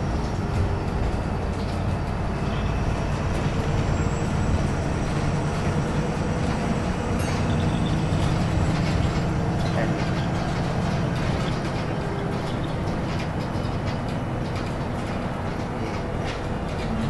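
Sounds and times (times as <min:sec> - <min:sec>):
bus diesel engine drone: 0:00.0 - 0:17.0
road and tyre noise: 0:00.0 - 0:17.0
bodywork clatter: 0:05.5 - 0:17.0.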